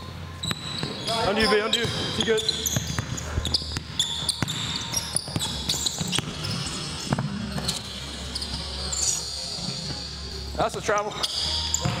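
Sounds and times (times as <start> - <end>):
sneaker squeaks: 0.0 - 12.0
basketball bouncing on court: 0.4 - 8.5, 11.7 - 12.0.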